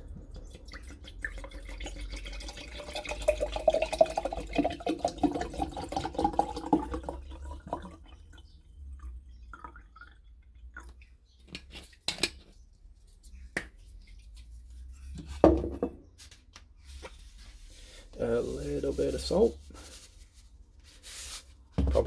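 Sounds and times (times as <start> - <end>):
liquid glugging into a glass jar: 0.0 - 11.7.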